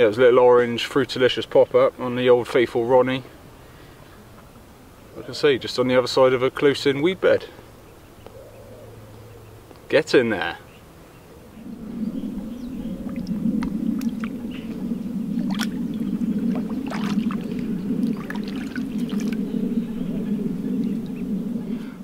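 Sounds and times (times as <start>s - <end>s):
steady low drone: 11.2s - 22.0s
water splashing and dripping: 13.1s - 19.4s.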